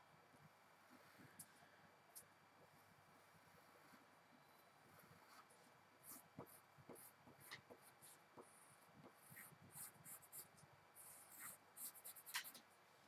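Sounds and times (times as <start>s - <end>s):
pencil scratching on paper: 5.0s - 12.6s.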